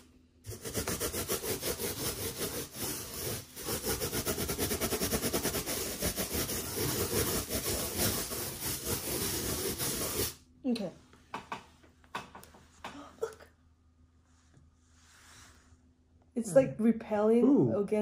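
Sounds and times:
balloon rubbing against hair: 0.5 - 10.4.

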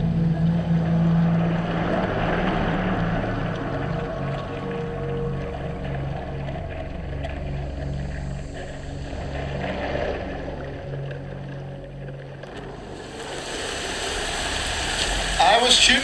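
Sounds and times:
low drone of held tones: 0.0 - 16.0
sea and water noise: 0.0 - 16.0
wind hiss: 12.7 - 16.0.

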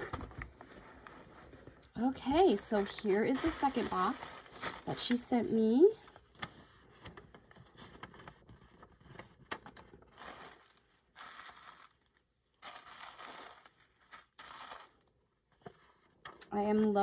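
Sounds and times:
tissue paper rustling: 0.0 - 17.0
paper handling taps and clicks: 6.2 - 10.1.

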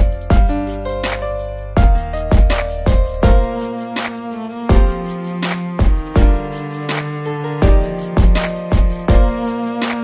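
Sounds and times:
deep drum beat: 0.0 - 0.7, 1.8 - 7.0, 7.6 - 9.6.

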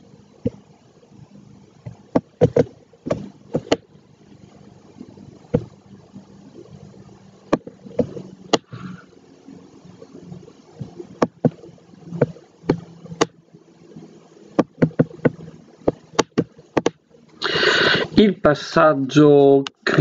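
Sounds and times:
faint steady hum: 0.0 - 20.0
stylus tapping on tablet screen: 1.8 - 3.9, 5.5 - 5.8, 7.5 - 8.8, 10.8 - 13.4, 14.6 - 17.0.

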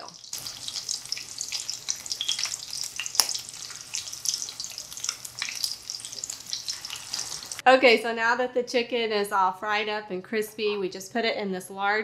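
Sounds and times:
chicken sizzling in oil: 0.0 - 7.6.

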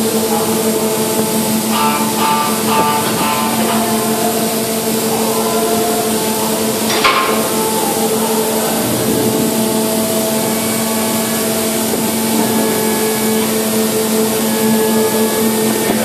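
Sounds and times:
machinery humming: 0.0 - 16.0
metallic clank: 6.8 - 10.9.

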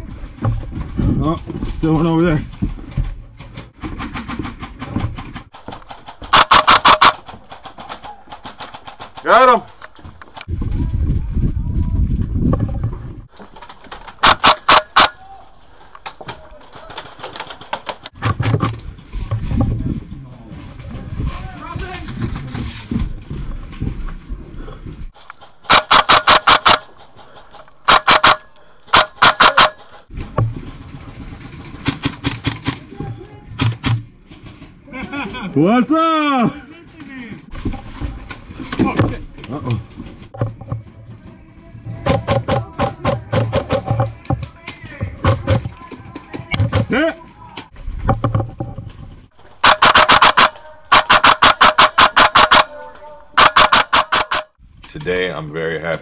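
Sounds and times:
airsoft guns firing: 5.5 - 9.7, 13.4 - 15.4, 25.2 - 30.0, 49.4 - 54.5.

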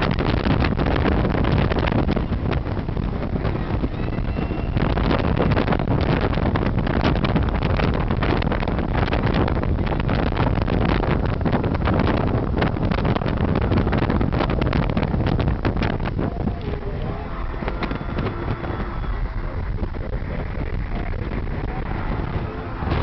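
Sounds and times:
road noise: 0.0 - 23.0
wind buffeting microphone: 0.0 - 23.0.

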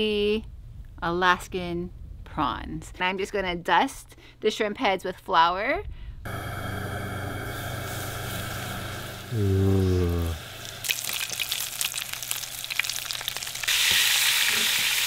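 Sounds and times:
low hum: 6.0 - 10.8
prawn heads frying in hot oil: 6.3 - 15.0.

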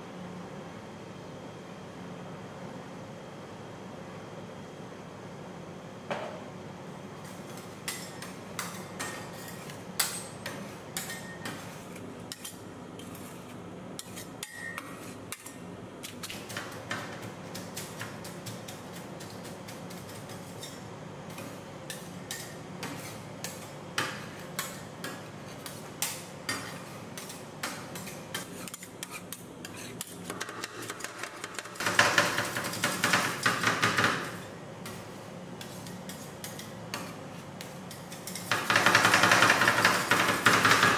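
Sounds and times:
metal spatulas tapping on steel: 10.0 - 11.6.

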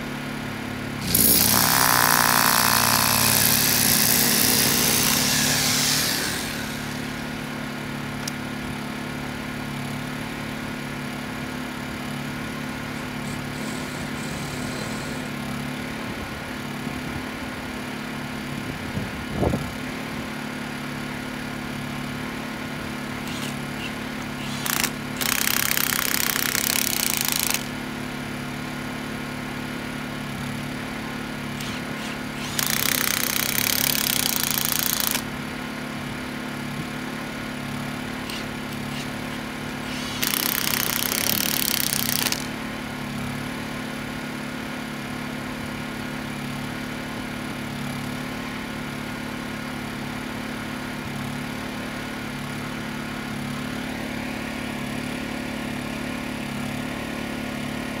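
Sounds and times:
small engine humming: 0.2 - 10.5, 11.1 - 20.1, 20.7 - 43.6
power drill driving screws: 1.0 - 7.3, 13.0 - 15.4, 23.1 - 27.8, 31.6 - 35.3, 38.2 - 42.5.

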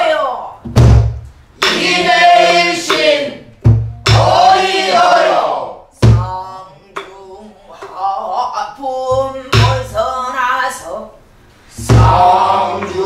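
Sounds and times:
deep barrel drum strokes: 3.6 - 4.8, 11.8 - 13.0.

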